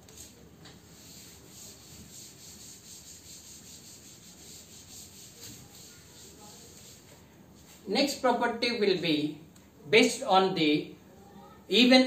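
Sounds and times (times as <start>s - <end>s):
duster wiping blackboard: 0.0s - 7.8s.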